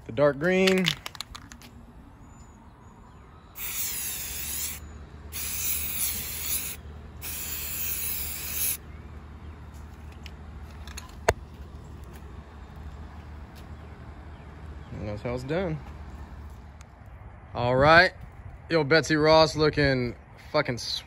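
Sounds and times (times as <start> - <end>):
spray paint can hissing: 3.6 - 8.8.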